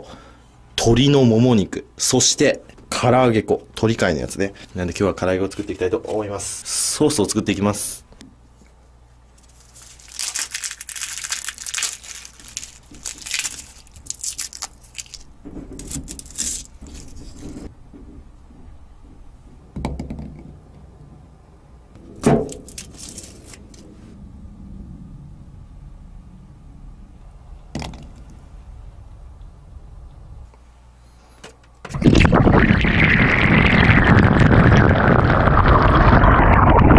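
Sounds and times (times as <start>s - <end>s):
garlic skin rustling: 9.4s - 17.7s, 22.5s - 23.9s.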